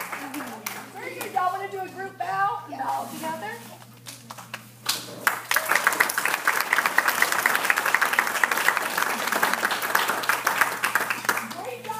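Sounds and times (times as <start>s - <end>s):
audience applauding: 0.0s - 0.9s, 5.2s - 11.9s.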